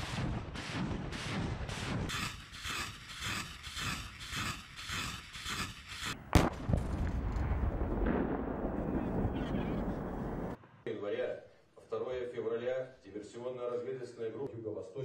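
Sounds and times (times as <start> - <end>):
sharp bang with low rumble: 6.3 - 10.6.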